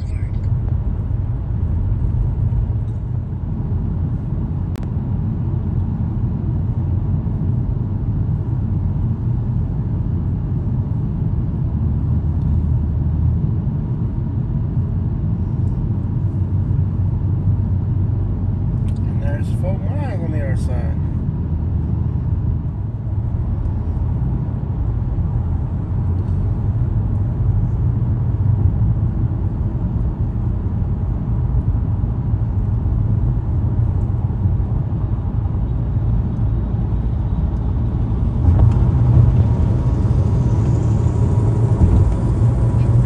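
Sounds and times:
car engine and tyre rumble: 0:00.0 - 0:43.0.

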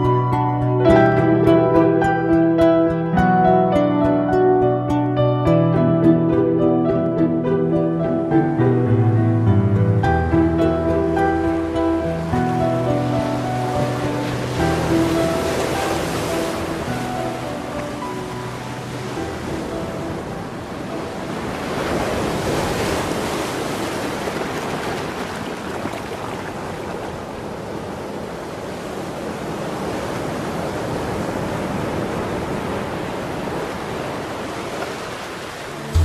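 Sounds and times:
steady rushing noise: 0:35.8 - 0:36.0.

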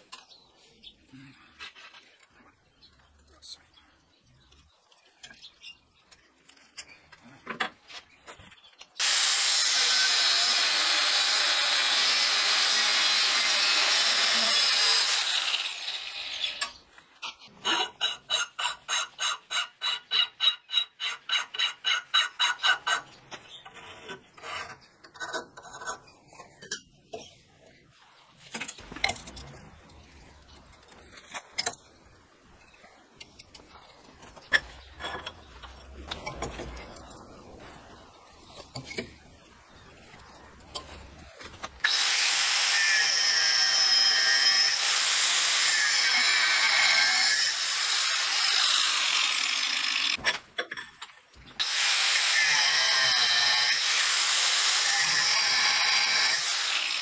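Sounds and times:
angle grinder on steel: 0:09.0 - 0:16.8, 0:41.8 - 0:50.2, 0:51.6 - 0:57.0.

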